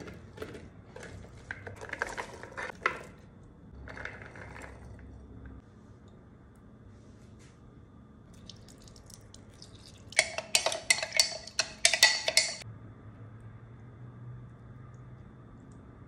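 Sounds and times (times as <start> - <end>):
spoon clinking in glass jug: 8.4 - 12.6.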